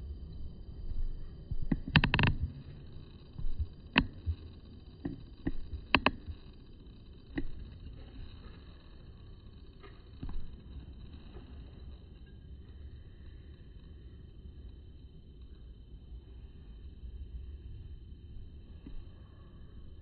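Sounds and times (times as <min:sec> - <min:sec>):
low rumble: 0:00.0 - 0:14.5
faint high whine: 0:00.0 - 0:20.0.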